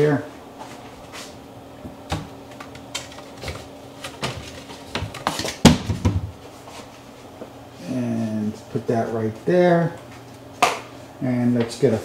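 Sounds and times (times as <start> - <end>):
cabinet door clicks and knocks: 5.0 - 6.4.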